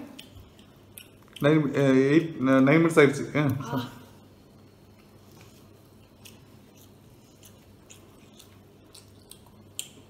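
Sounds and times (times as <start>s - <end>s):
person chewing food: 0.0s - 1.6s, 4.4s - 10.0s
low steady hum: 0.0s - 10.0s.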